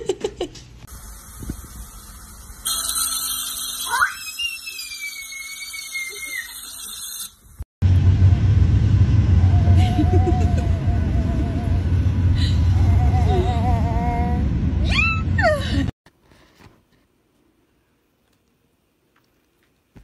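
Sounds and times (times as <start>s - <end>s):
electric toothbrush buzzing: 0.9s - 5.0s, 5.6s - 7.4s
baby squealing: 3.9s - 6.8s
loud low rumble: 7.8s - 15.9s.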